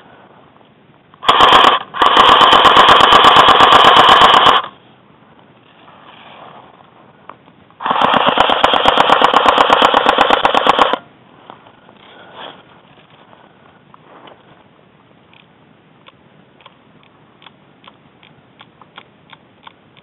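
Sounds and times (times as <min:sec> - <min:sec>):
airsoft gun firing bursts: 0:01.2 - 0:04.7, 0:07.8 - 0:11.0.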